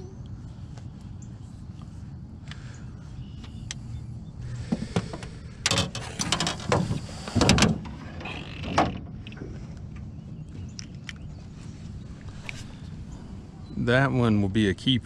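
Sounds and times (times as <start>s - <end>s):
clattering in boat: 4.6s - 10.2s.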